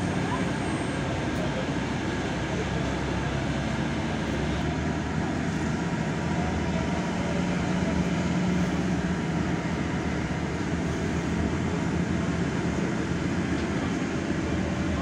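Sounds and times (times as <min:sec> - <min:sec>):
low engine hum: 0:00.0 - 0:15.0
wheels rumbling on track: 0:00.0 - 0:15.0.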